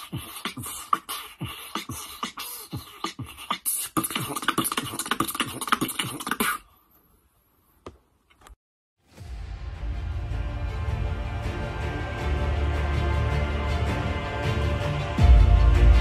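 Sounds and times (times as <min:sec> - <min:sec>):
beatboxing: 0:00.0 - 0:06.7.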